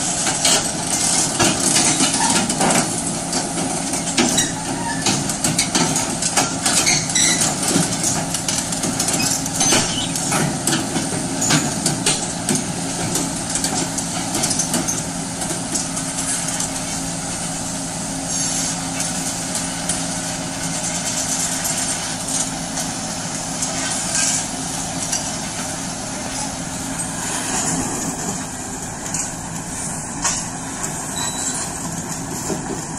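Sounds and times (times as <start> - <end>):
excavator diesel engine running: 0.0 - 32.9
steel tracks knocking and clanking: 0.2 - 16.0, 23.7 - 32.9.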